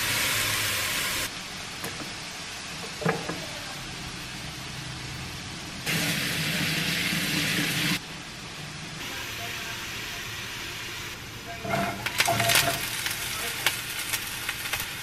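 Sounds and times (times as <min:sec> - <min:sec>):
chicken sizzling in a frying pan: 0:00.0 - 0:01.3, 0:09.1 - 0:15.0.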